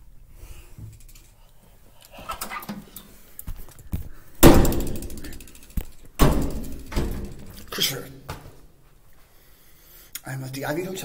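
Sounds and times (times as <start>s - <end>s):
knocks and rustles: 2.4s - 8.6s
loud thud: 4.4s - 5.3s, 6.2s - 7.6s.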